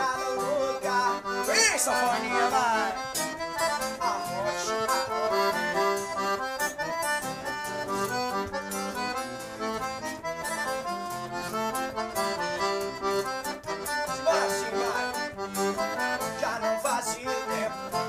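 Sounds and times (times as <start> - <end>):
accordion playing lively solo: 0.0 - 18.0
strummed acoustic guitar: 0.0 - 18.0.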